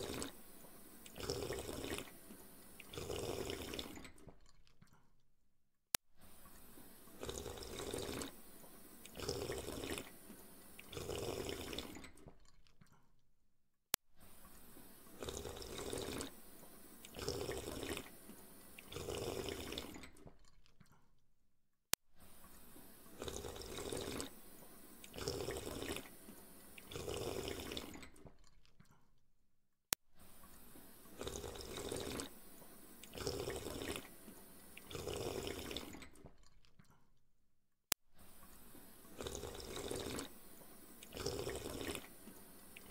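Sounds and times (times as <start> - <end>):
underwater bubbling: 0.0 - 4.2, 6.5 - 12.1, 22.8 - 28.0, 30.8 - 36.1, 38.8 - 42.9.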